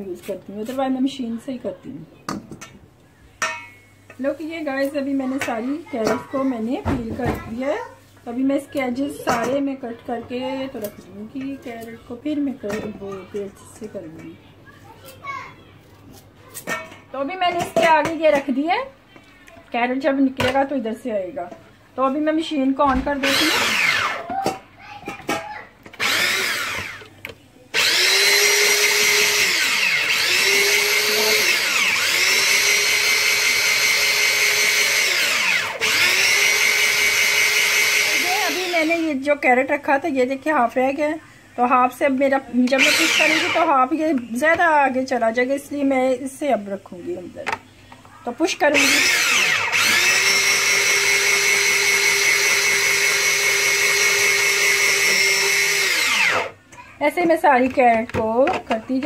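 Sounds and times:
electric grater motor whine: 23.2s - 24.2s, 26.0s - 27.1s, 27.8s - 39.0s, 42.8s - 43.8s, 48.8s - 56.6s
drum shredding carrot: 27.8s - 38.7s, 48.8s - 56.6s.

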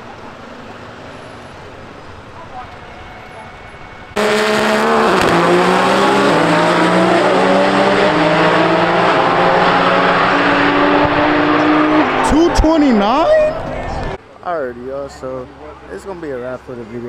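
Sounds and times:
race car engine revving high: 4.1s - 14.2s.

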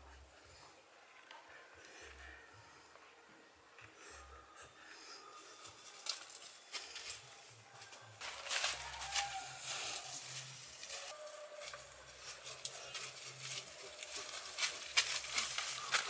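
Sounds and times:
footsteps in dry leaves: 5.7s - 16.0s
sharp crackles: 11.7s - 16.0s.

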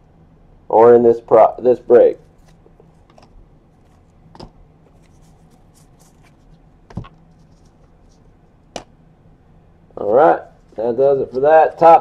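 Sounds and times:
cards rustling: 2.1s - 8.4s, 10.0s - 12.0s.

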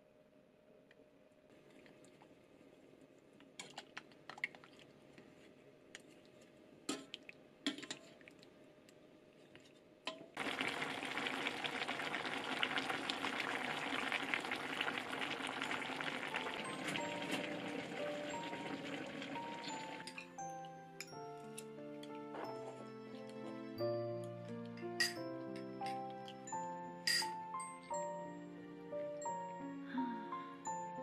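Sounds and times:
stew bubbling and simmering: 1.5s - 23.9s.

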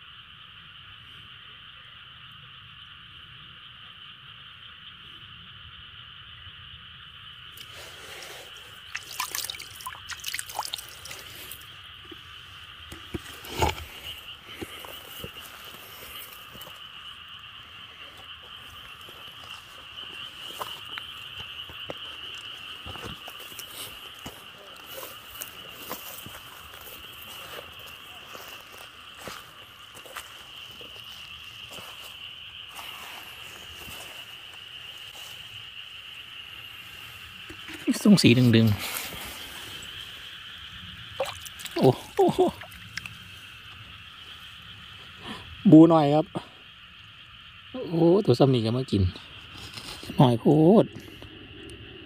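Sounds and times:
high-pitched insect chorus: 0.0s - 52.0s
water dripping and splashing: 7.6s - 16.8s, 37.4s - 38.2s, 41.1s - 43.2s.

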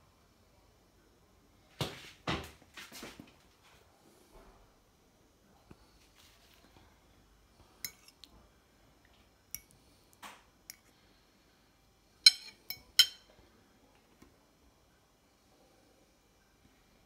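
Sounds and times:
fork clinking on ceramic plate: 7.9s - 8.2s, 12.2s - 13.3s.

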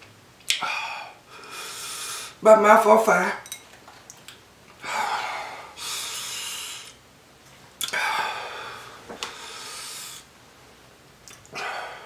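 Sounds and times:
person breathing out hard: 4.8s - 7.0s, 7.9s - 10.3s, 11.5s - 12.0s.

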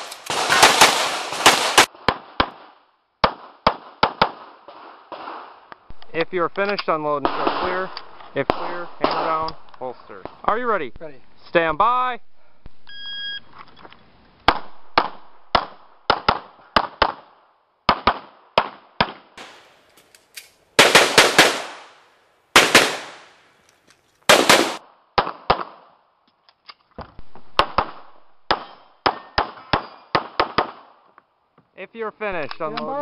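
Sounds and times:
pistol shots: 0.0s - 5.7s, 7.2s - 9.7s, 14.5s - 19.6s, 20.8s - 22.0s, 22.6s - 23.4s, 24.3s - 25.9s, 27.5s - 31.0s
shot timer beep: 12.9s - 13.5s.

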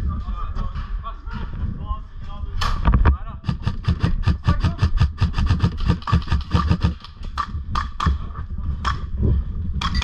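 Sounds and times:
airsoft guns firing: 3.4s - 8.2s.

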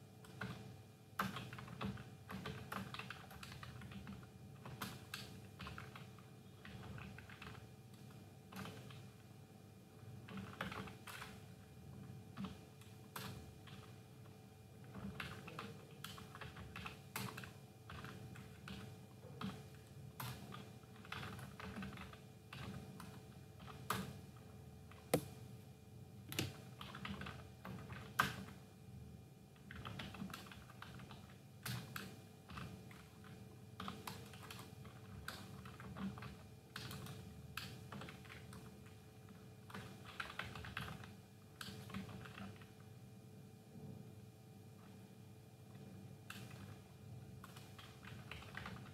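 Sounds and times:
faint steady hum: 0.0s - 48.9s
keyboard typing: 1.2s - 9.0s, 10.3s - 11.4s, 14.9s - 24.1s, 39.7s - 42.7s, 47.4s - 48.9s.

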